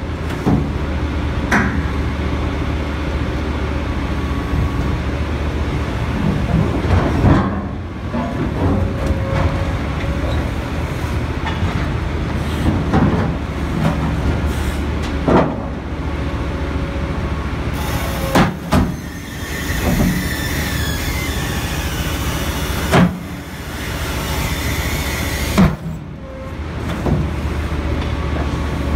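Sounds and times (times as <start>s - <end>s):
excavator engine running: 0.0s - 28.9s
metal creaking and squealing: 8.9s - 10.6s, 17.8s - 25.6s
hydraulic shear crushing steel pipe: 17.8s - 26.1s.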